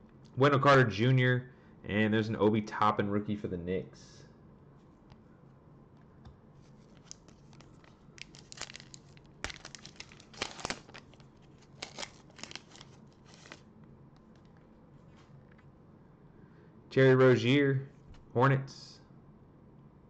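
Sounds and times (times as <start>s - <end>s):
wrapper tearing and crinkling: 6.8s - 13.6s.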